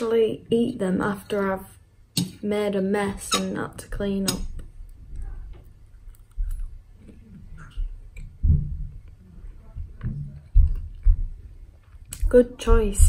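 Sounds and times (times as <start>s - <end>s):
chewing and mouth sounds: 6.0s - 8.3s
low thumps: 7.5s - 9.1s.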